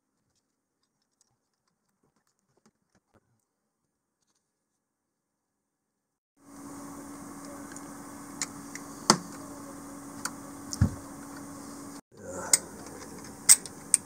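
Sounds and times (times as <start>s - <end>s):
steady low hum: 6.4s - 14.0s.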